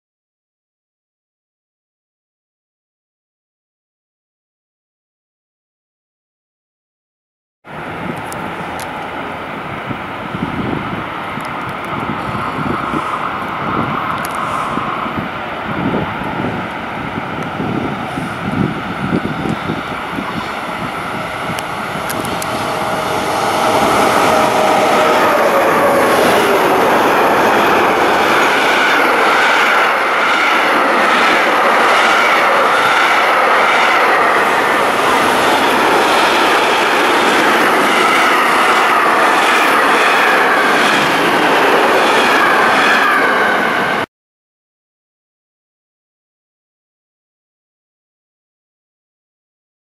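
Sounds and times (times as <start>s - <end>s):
locomotive whine: 7.7s - 44.1s
train passing with rumble: 7.7s - 44.1s.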